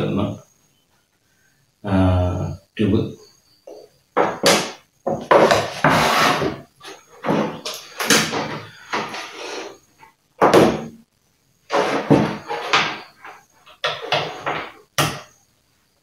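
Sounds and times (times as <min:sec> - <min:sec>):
objects knocking on wooden table: 0:04.2 - 0:06.2, 0:11.7 - 0:13.1, 0:13.8 - 0:15.3.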